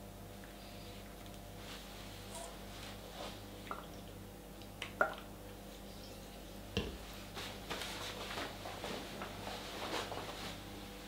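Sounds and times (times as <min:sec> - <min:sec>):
paper towel rustling: 0:07.4 - 0:10.6.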